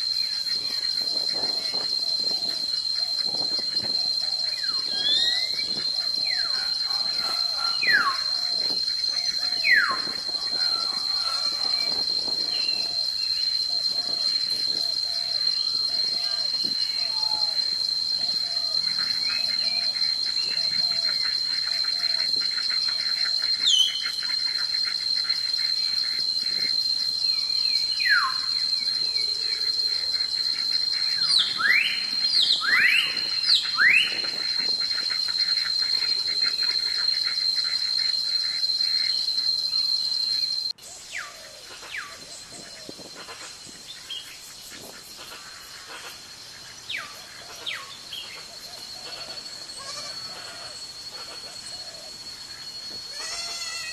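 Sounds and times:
birds whistling: 0:00.0 - 0:43.1
insects trilling: 0:00.0 - 0:53.9.

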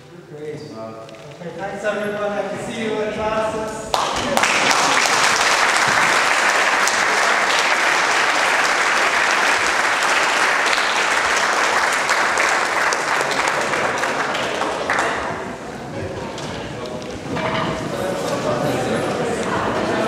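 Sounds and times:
audience applauding: 0:03.9 - 0:15.8.

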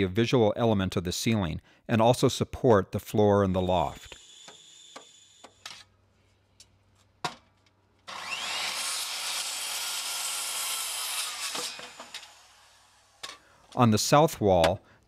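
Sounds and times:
circular saw cutting wood: 0:03.8 - 0:05.6, 0:08.1 - 0:13.3.

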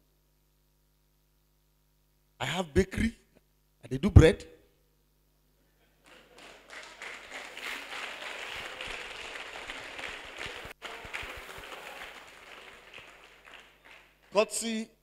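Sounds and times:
audience applauding: 0:06.0 - 0:14.6.

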